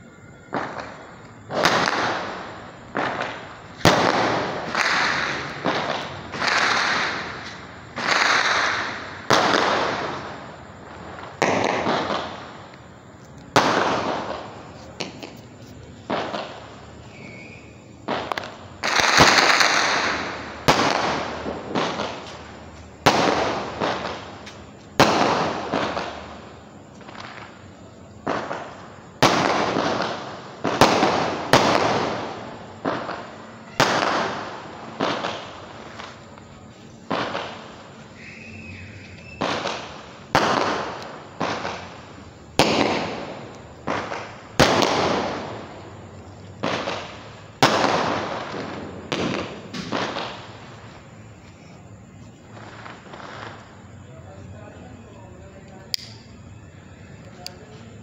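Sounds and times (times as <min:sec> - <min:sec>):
fireworks exploding: 0:00.0 - 0:58.0.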